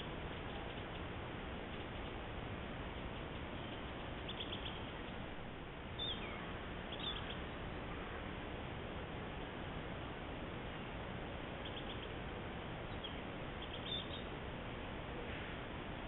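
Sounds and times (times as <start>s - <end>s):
microphone hiss: 0.0s - 16.0s
high bird chirps: 3.0s - 5.2s, 6.0s - 7.6s, 11.6s - 12.2s, 12.9s - 14.3s.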